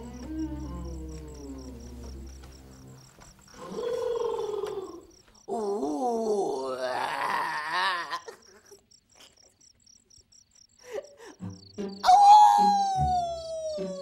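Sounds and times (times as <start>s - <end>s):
wavering wail: 0.0s - 2.0s, 11.9s - 14.0s
crickets chirping: 0.0s - 14.0s.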